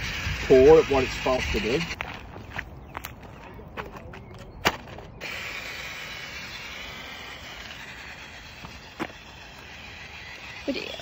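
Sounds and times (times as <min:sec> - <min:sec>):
toy car motor whining: 0:00.0 - 0:02.0, 0:05.2 - 0:11.0.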